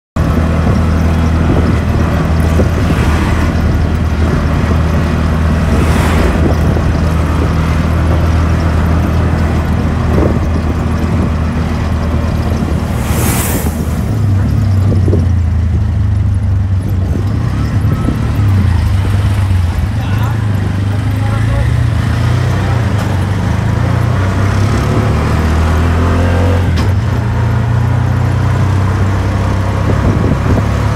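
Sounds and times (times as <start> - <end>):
passing traffic whooshes: 0.2 - 16.4
auto rickshaw engine running: 0.2 - 30.9.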